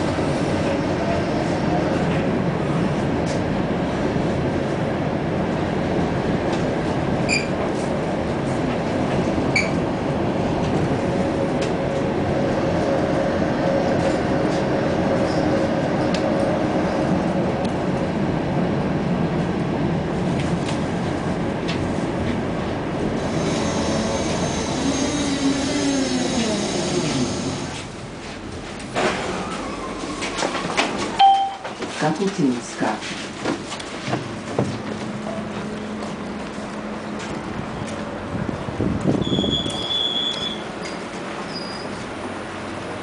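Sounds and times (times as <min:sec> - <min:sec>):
tram whine: 0:00.0 - 0:31.8, 0:33.2 - 0:43.0
tram wheels rumbling on rails: 0:00.0 - 0:43.0
short high pings: 0:31.2 - 0:31.7.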